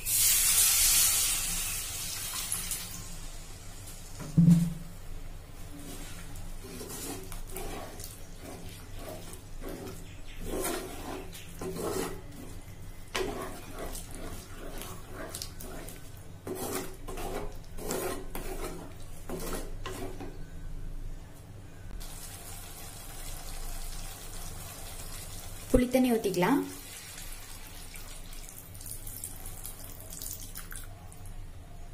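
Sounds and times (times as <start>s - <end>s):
wooden spatula scraping a pot: 5.7s - 20.4s.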